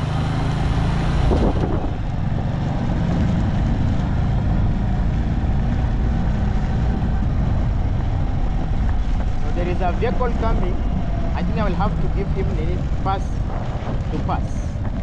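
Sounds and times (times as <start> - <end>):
motorcycle engine running: 0.0 - 15.0
road and wind noise: 0.0 - 15.0.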